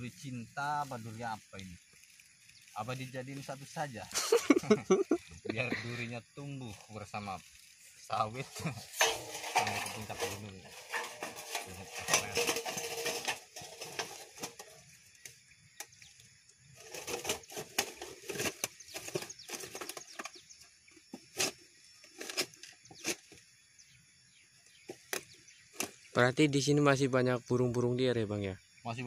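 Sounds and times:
thin metal sheet clicking and scraping: 8.7 - 14.8, 16.8 - 20.4.

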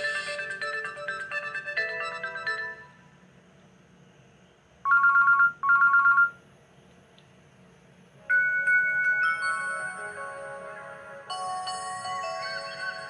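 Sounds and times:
phone ringtone melody: 0.0 - 3.0, 4.9 - 6.4, 8.3 - 10.5, 11.3 - 13.0
trilling phone rings: 4.9 - 6.4, 8.3 - 10.1.

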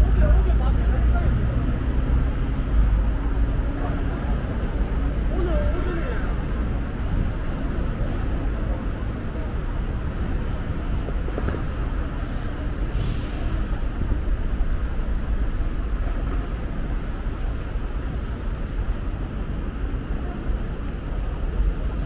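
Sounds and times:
road traffic: 0.0 - 22.0
brief hiss: 12.9 - 13.6.

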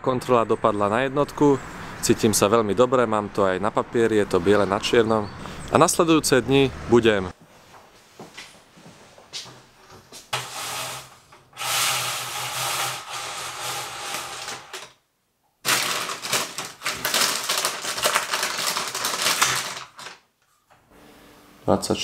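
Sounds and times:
window blind sliding rustle: 10.3 - 14.9
blind clicking and rattling: 10.4 - 15.0, 15.6 - 20.3.

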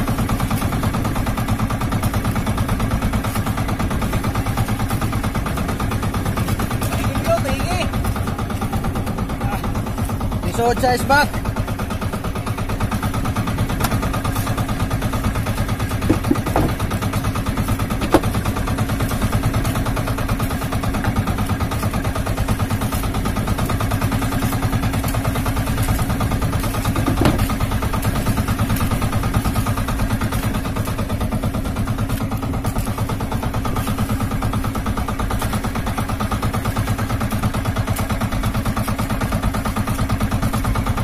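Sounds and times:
small boat engine running: 0.0 - 41.0
short knocks: 16.0 - 16.9.

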